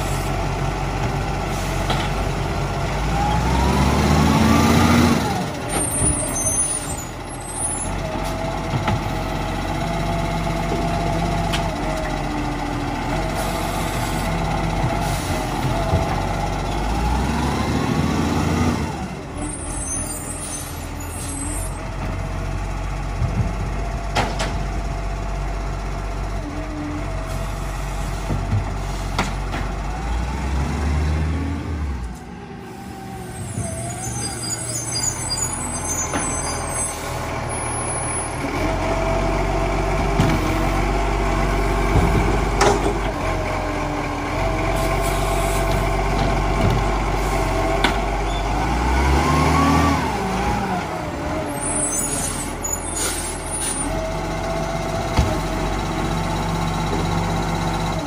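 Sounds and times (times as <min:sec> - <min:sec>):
diesel engine revving: 0:00.0 - 0:58.0
bins and hydraulic arm clunking: 0:27.3 - 0:30.0, 0:41.7 - 0:43.5, 0:44.4 - 0:48.6.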